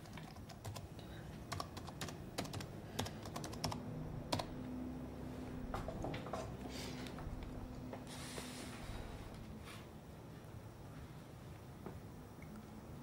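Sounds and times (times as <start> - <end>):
laptop keyboard typing: 0.0 - 4.6
faint low hum: 0.0 - 13.0.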